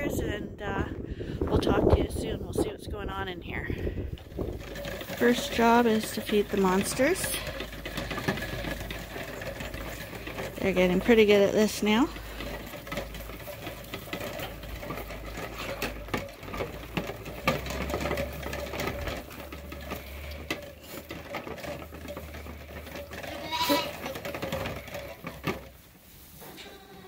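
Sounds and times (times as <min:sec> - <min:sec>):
sheep bleating: 0:23.3 - 0:24.0.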